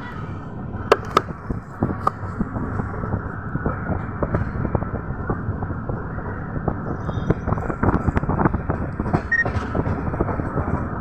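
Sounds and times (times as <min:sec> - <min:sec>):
train rumbling inside coach: 0:00.0 - 0:11.0
rattles and knocks: 0:07.9 - 0:11.0.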